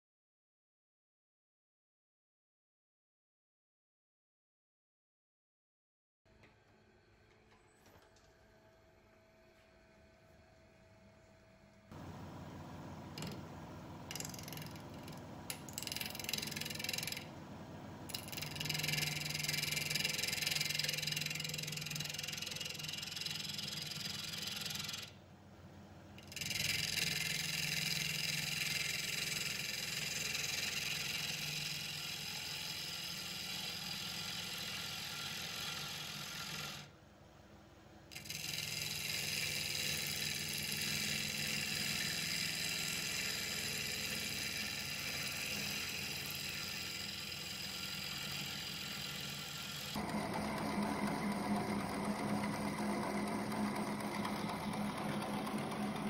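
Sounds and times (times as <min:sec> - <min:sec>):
gouge shearing wood on lathe: 0:11.9 - 0:25.1, 0:26.2 - 0:36.9, 0:38.1 - 0:56.0
lathe humming: 0:11.9 - 0:25.2, 0:26.2 - 0:36.9, 0:38.1 - 0:56.0.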